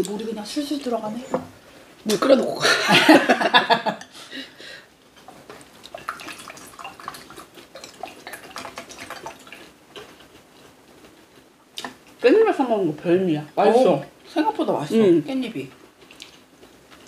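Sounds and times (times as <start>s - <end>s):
chewing: 5.2s - 12.0s, 15.7s - 17.0s.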